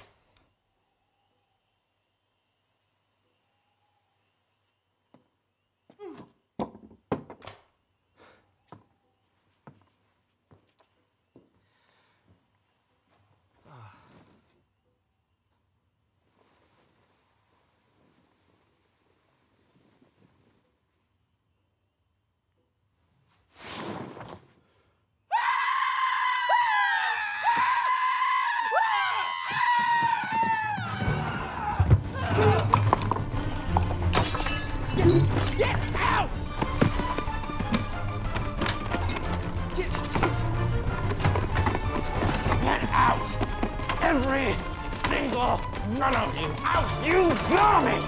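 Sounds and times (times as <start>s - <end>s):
footsteps on wooden floor: 36.4s - 47.6s.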